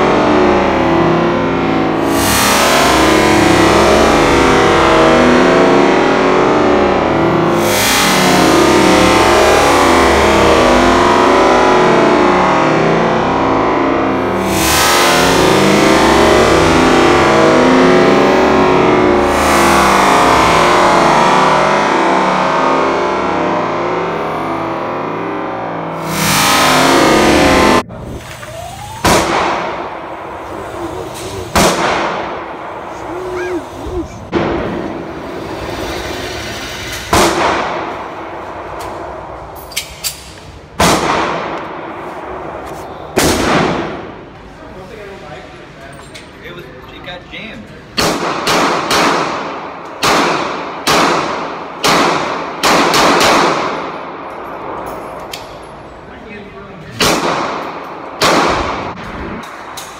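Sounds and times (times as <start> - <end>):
gunshots echoing indoors: 0.0 - 27.9, 28.7 - 35.6, 37.1 - 44.5, 48.0 - 55.6, 57.0 - 59.9
pistol shots echoing indoors: 29.0 - 30.4, 31.5 - 32.9, 37.1 - 44.4, 48.0 - 55.6, 57.0 - 59.9.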